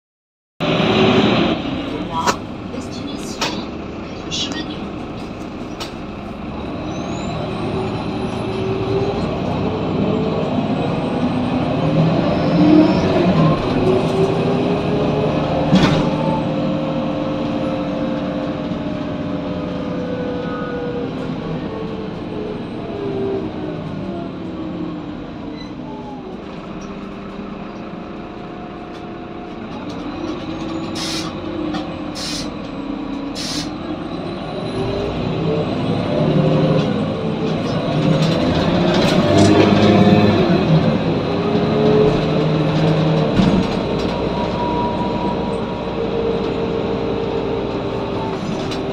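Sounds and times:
bus engine: 0:00.6 - 0:48.9
short air hisses: 0:31.0 - 0:31.3, 0:32.2 - 0:32.5, 0:33.4 - 0:33.7.

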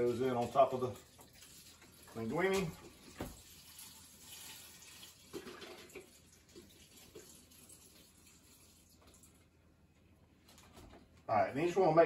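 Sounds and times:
liquid pouring into metal pot: 0:00.0 - 0:09.5.

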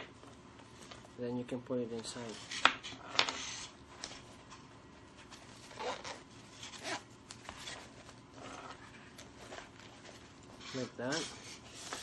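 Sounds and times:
cloth rustling: 0:03.8 - 0:12.0
zipper rasping: 0:05.6 - 0:07.0, 0:08.4 - 0:09.7.

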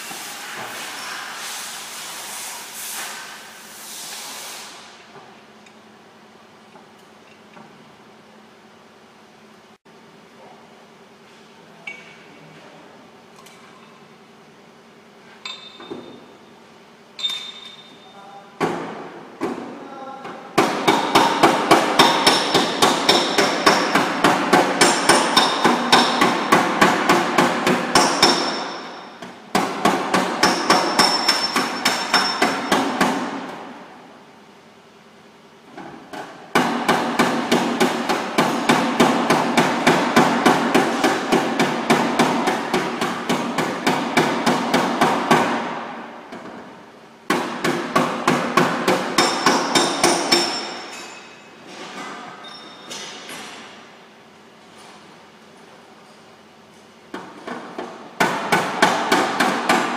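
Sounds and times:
hammer tapping on metal: 0:20.6 - 0:28.7.

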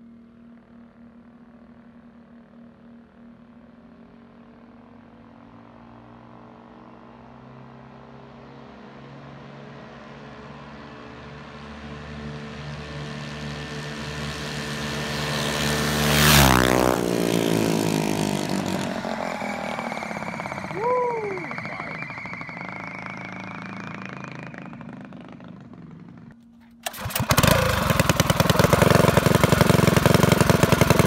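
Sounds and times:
small engine passing by: 0:00.0 - 0:31.0.

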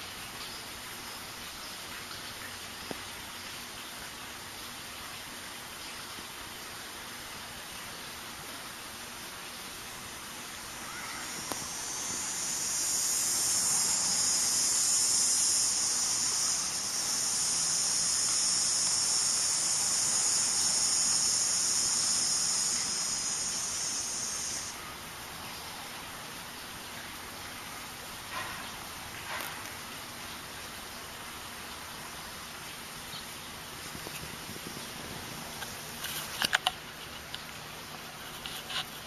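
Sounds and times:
faint background hiss: 0:00.0 - 0:39.0
high-pitched hiss: 0:08.0 - 0:25.9, 0:31.9 - 0:39.0.

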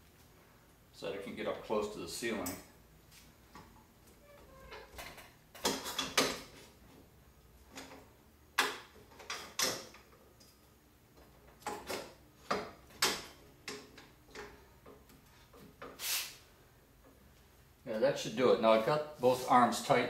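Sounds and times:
short metal scrape: 0:16.0 - 0:16.4.

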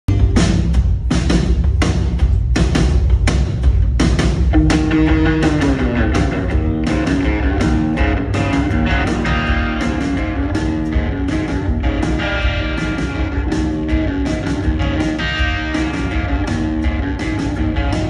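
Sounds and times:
bass guitar: 0:00.0 - 0:18.0
drum beat: 0:00.1 - 0:18.0
electric guitars: 0:04.3 - 0:18.0.

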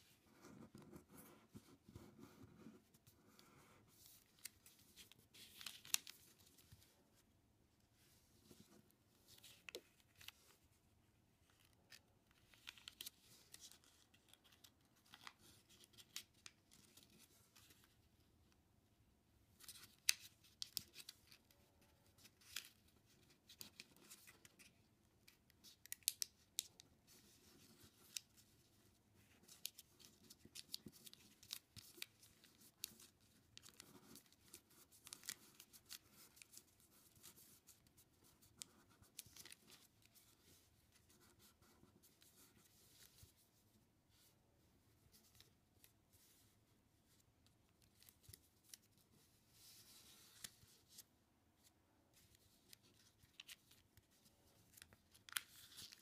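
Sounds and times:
paper rustling: 0:03.3 - 0:06.9, 0:19.6 - 0:44.3, 0:47.8 - 0:56.0.

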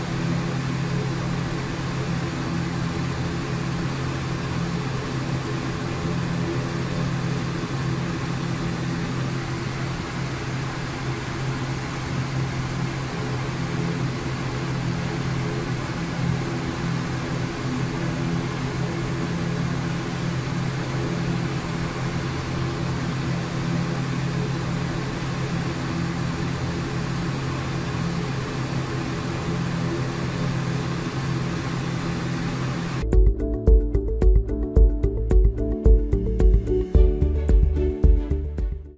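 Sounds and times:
low multi-toned drone: 0:00.0 - 0:38.9.

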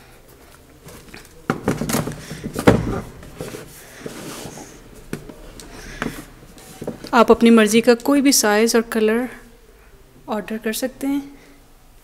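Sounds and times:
shoes rustling: 0:00.6 - 0:07.1.

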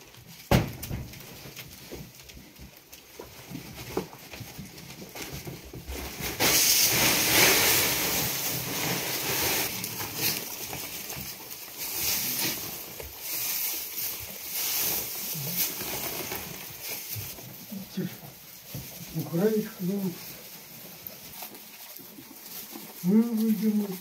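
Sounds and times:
hot pan sizzling: 0:06.4 - 0:09.7.

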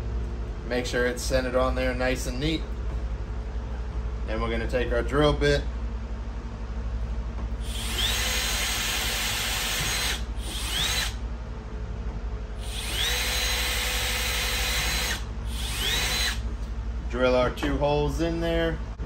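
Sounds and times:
power drill whining: 0:07.6 - 0:11.2, 0:12.6 - 0:16.4.

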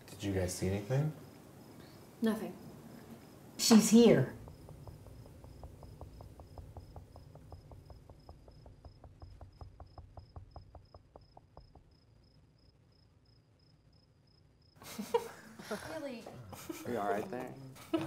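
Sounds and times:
crickets chirping: 0:00.1 - 0:18.0.

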